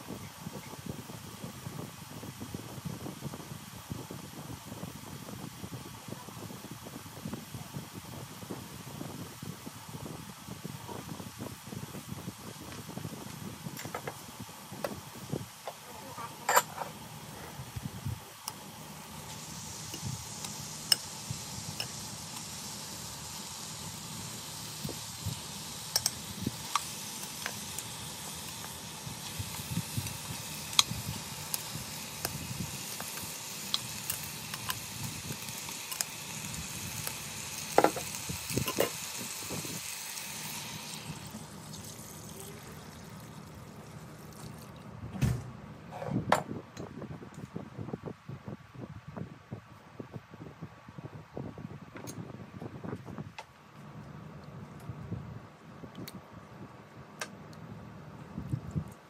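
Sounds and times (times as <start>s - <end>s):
food sizzling in hot oil: 16.4s - 44.8s.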